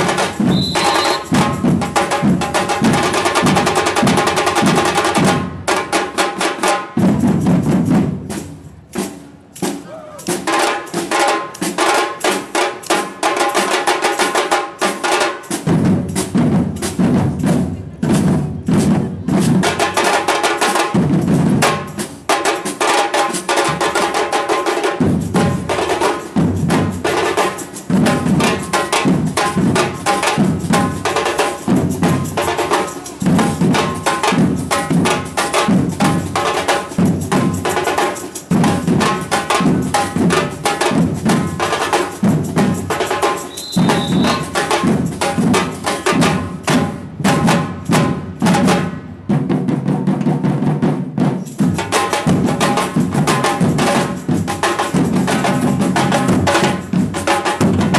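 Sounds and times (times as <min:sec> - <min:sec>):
samba percussion band: 0:00.0 - 0:57.9
short high tone: 0:00.4 - 0:01.4, 0:43.5 - 0:44.5.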